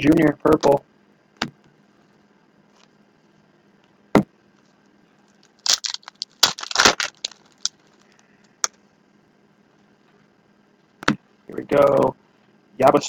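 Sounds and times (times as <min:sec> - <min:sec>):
card pack wrapper crinkling and tearing: 0:05.4 - 0:08.1.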